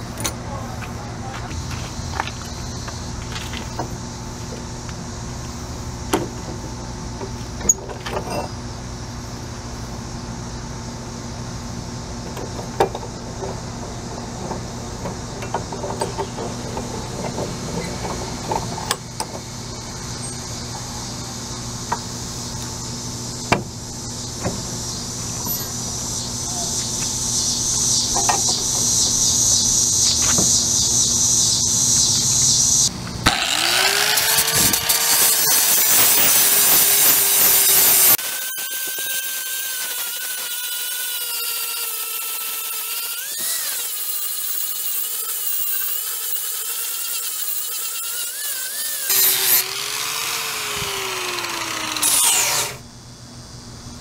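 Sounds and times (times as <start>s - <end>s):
steady machine hum: 0.0s - 38.4s.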